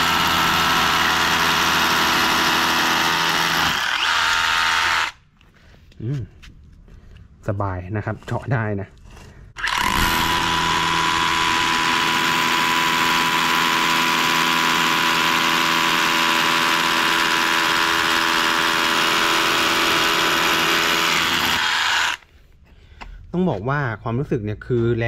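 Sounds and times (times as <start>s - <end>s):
rotary hammer drilling concrete: 0.0s - 5.2s, 9.5s - 22.3s.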